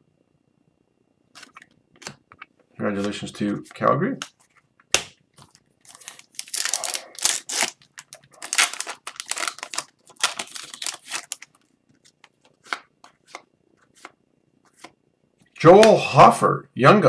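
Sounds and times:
foil wrapper tearing and crinkling: 5.4s - 12.8s.

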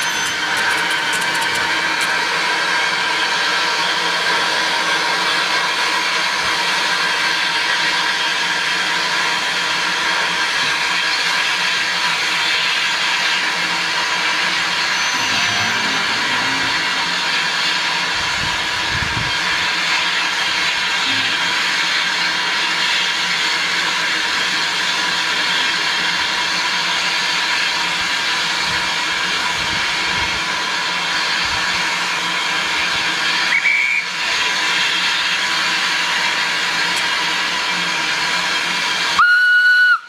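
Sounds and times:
steam hissing: 0.0s - 40.0s
brief high tone: 14.8s - 17.5s.

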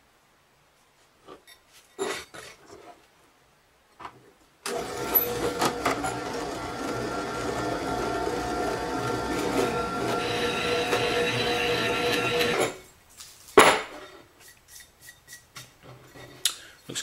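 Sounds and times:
drill press cutting metal: 4.7s - 12.8s.

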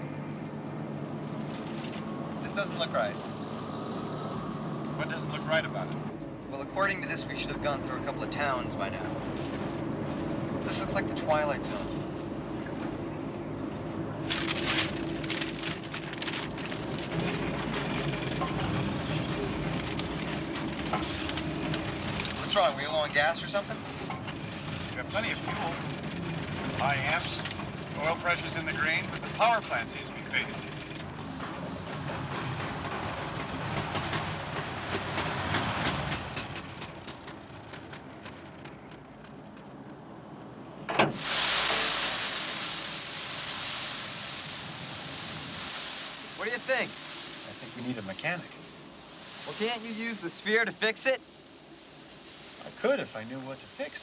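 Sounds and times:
car engine and road noise: 0.0s - 54.0s
paper map rustling: 14.2s - 22.7s
steam hissing: 31.1s - 37.2s, 41.0s - 54.0s
engine ticking: 31.8s - 40.6s
car hood clunk: 40.9s - 41.2s.

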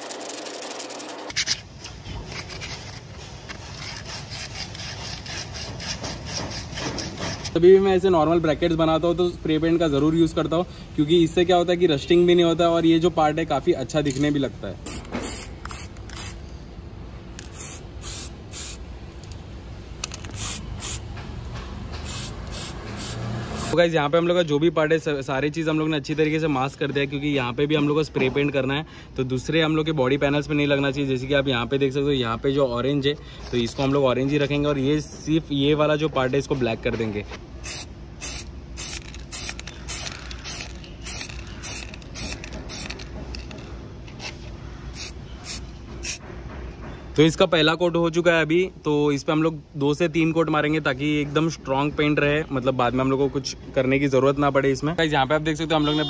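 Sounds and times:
spray paint can hissing bursts: 0.0s - 1.5s, 14.8s - 16.4s, 17.4s - 18.9s, 20.1s - 21.1s, 22.0s - 23.8s, 37.6s - 43.6s, 44.9s - 46.2s.

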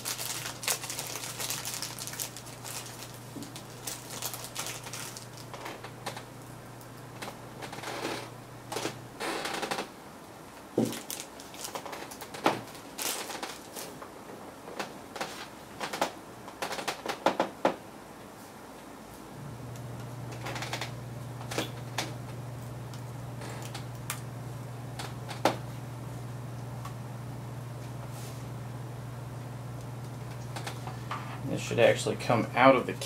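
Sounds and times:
steady low hum: 0.0s - 11.2s, 18.0s - 33.0s.

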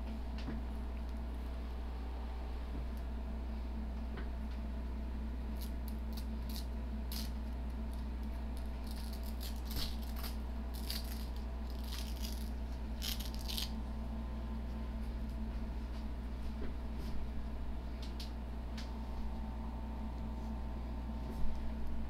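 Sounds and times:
low hum: 0.0s - 22.0s.

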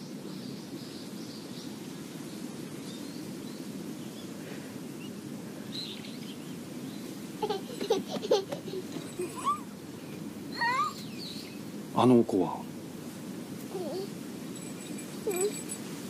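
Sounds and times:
low background noise: 0.0s - 16.0s
faint bird chirps: 9.0s - 11.6s.

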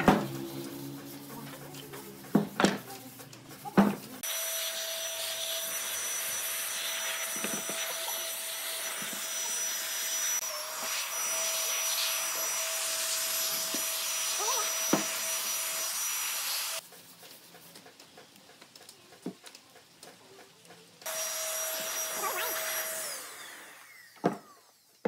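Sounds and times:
electric blower whining: 4.2s - 16.8s, 21.1s - 24.7s.

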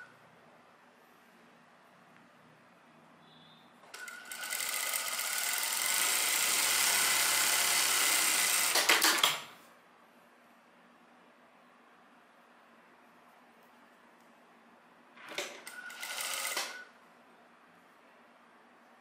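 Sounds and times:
sewing machine stitching: 3.9s - 9.5s, 15.2s - 16.9s.

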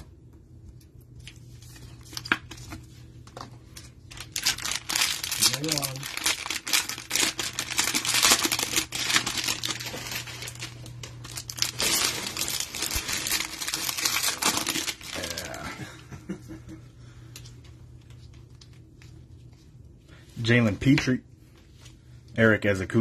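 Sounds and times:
plastic wrapper crinkling and tearing: 0.8s - 15.7s.

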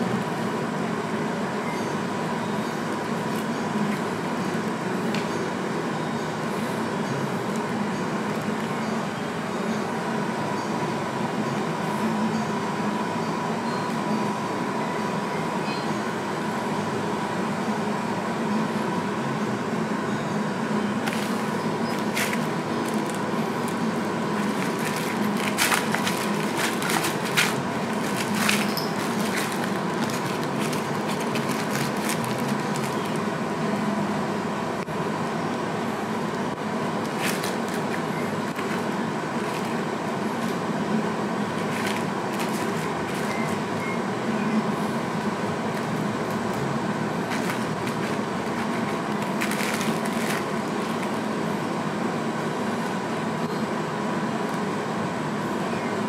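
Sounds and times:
room hum and hiss: 0.0s - 56.0s.

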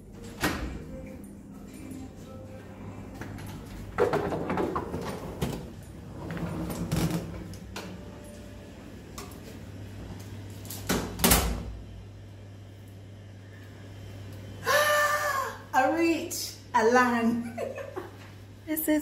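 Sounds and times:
low hum: 0.0s - 15.7s
suitcase rolling over tiles: 3.4s - 7.6s.

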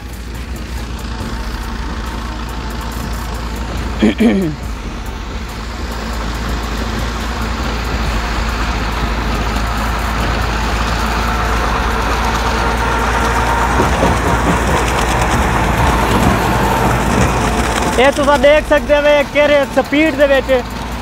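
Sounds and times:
tractor diesel engine under load: 0.0s - 21.0s.

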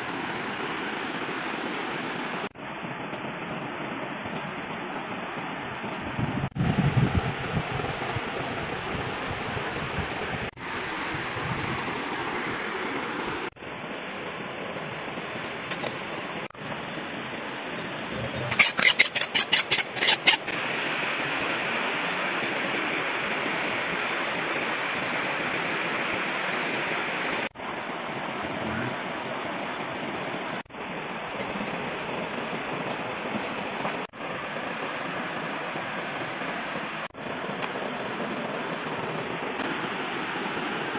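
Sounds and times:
river flowing: 8.4s - 40.9s.

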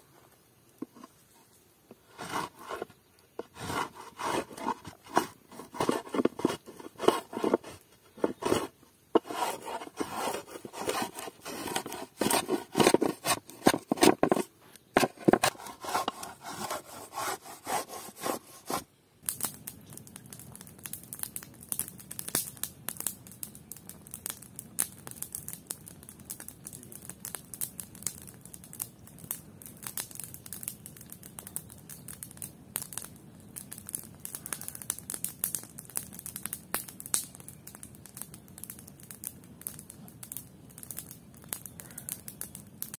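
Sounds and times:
campfire crackling and popping: 1.8s - 43.0s.

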